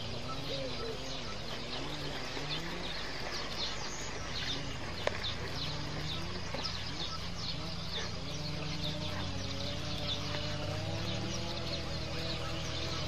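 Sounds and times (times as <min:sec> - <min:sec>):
lower wavering bird call: 0:00.0 - 0:03.0
birds chirping: 0:00.0 - 0:13.0.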